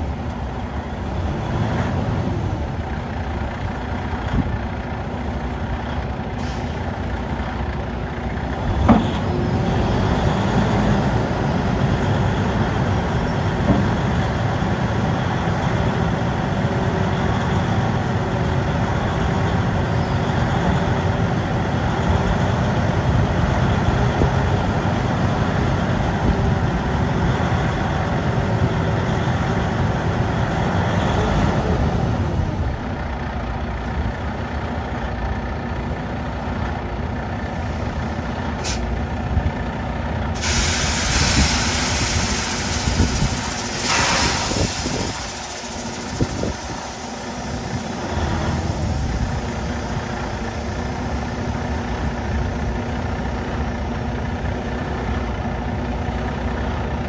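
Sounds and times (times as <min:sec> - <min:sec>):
diesel truck engine running: 0:00.0 - 0:57.0
compressed air hissing: 0:38.6 - 0:38.9, 0:40.4 - 0:50.8.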